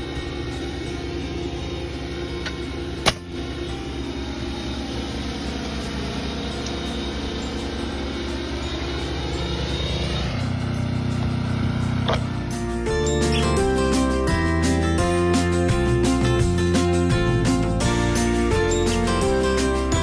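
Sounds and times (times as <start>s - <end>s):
motor humming: 0.0s - 13.7s.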